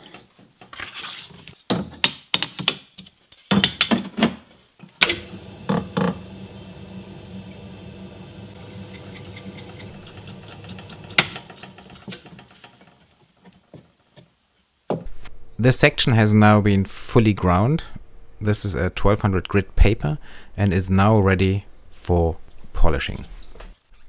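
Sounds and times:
grinding machine humming: 5.1s - 12.1s.

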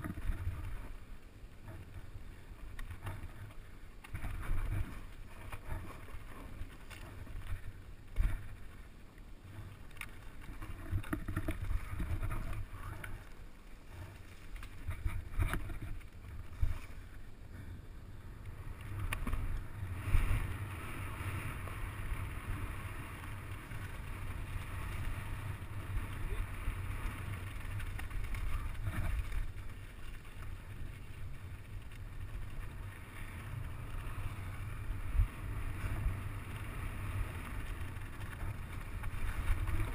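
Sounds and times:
tyres rolling on gravel: 0.0s - 39.9s
bike knocks and rattles: 10.4s - 13.1s.

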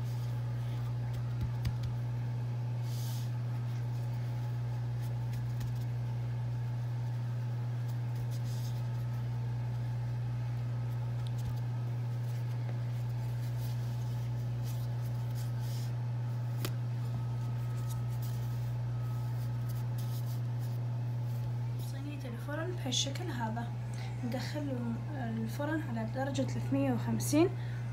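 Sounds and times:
pastry sheets crackling: 0.0s - 22.5s
low steady hum: 0.0s - 27.9s.

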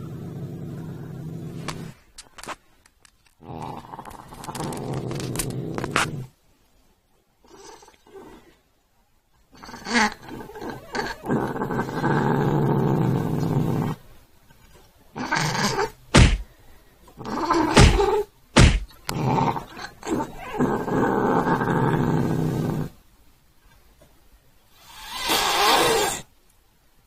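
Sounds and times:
cat growling: 0.0s - 2.0s, 3.4s - 6.3s, 7.4s - 8.6s, 9.5s - 14.0s, 15.1s - 16.4s, 17.2s - 23.0s, 24.8s - 26.3s
sharp thumps: 16.1s - 16.5s, 17.7s - 19.0s.

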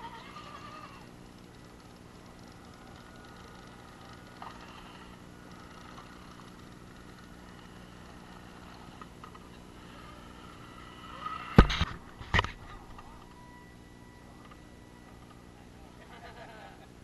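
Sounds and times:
toy car motor whining: 0.0s - 1.1s, 2.2s - 11.6s.

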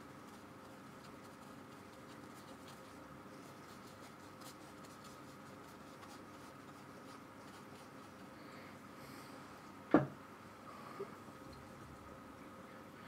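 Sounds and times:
paintbrush scratching on paper: 0.0s - 8.4s
low steady hum: 0.0s - 13.0s.

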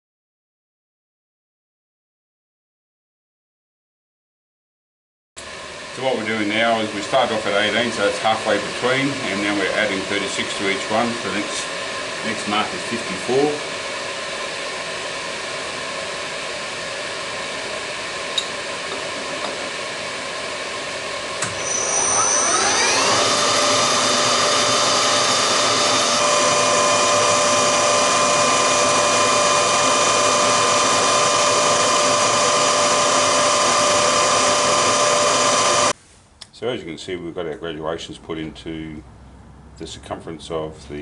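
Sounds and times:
milling machine spindle whine: 5.4s - 35.9s.

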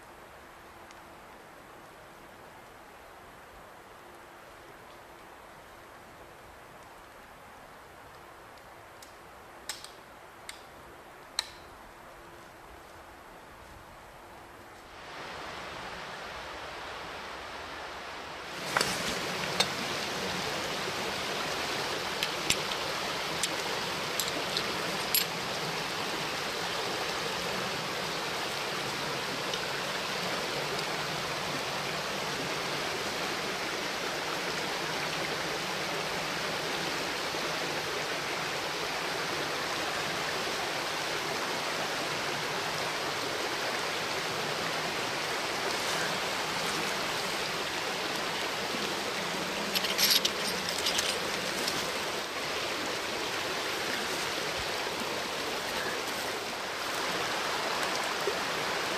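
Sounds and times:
flint striking steel clicks: 9.0s - 10.7s, 11.4s - 11.7s, 22.2s - 25.3s
creek rushing: 14.2s - 58.9s.

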